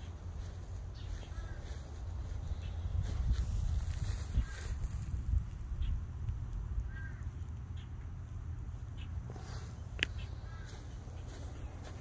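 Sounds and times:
faint bird chirp: 0.0 - 4.8, 8.9 - 12.0
wind rumble on microphone: 0.0 - 9.0.

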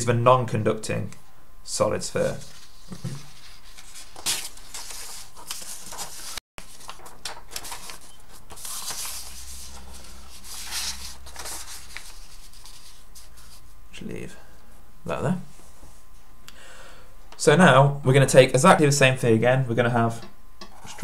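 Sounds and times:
paper pages rustling: 2.2 - 13.7.

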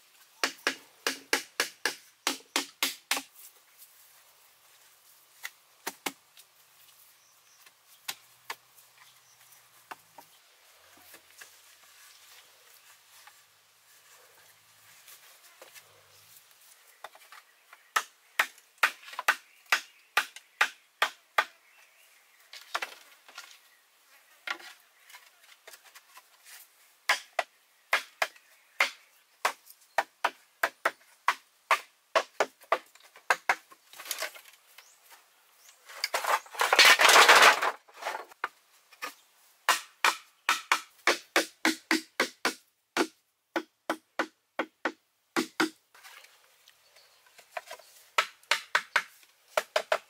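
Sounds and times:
knife chopping bamboo: 0.4 - 3.3, 27.1 - 33.6, 39.7 - 45.8.

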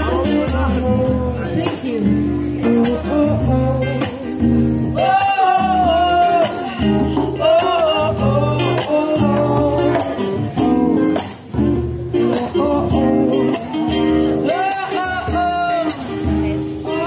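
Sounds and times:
acoustic guitar: 0.0 - 17.0
person singing into microphone: 0.0 - 17.0.

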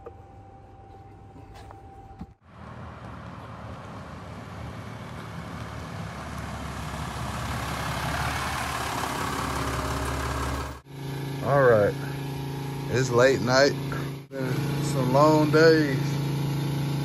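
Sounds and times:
truck engine running: 0.7 - 17.0.

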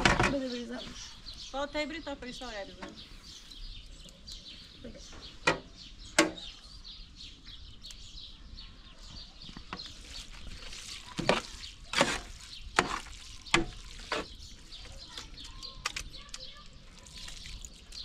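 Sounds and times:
ladle stirring sauce in pot: 9.7 - 18.0.

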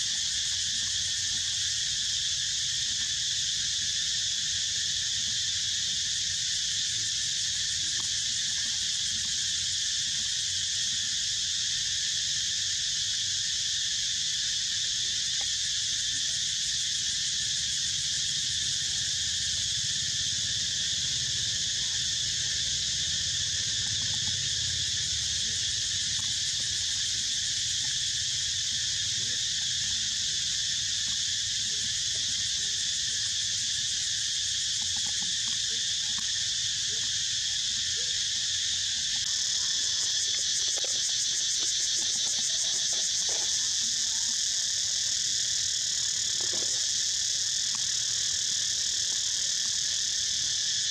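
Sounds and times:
insects chorus: 0.0 - 50.9.

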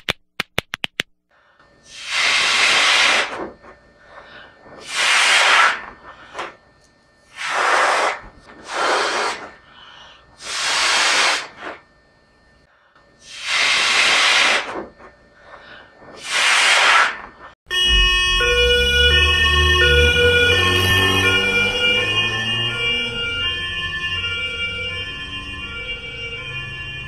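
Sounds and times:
hissing puffs of breath: 1.4 - 3.2, 7.4 - 11.8, 12.7 - 14.7.

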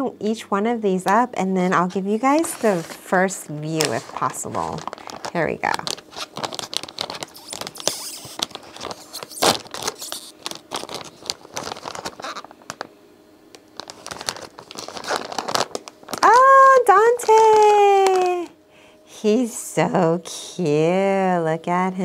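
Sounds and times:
plastic bag crinkling: 2.1 - 12.9, 13.6 - 18.5
plastic ripping: 2.2 - 3.1, 3.7 - 12.9, 13.5 - 18.5.

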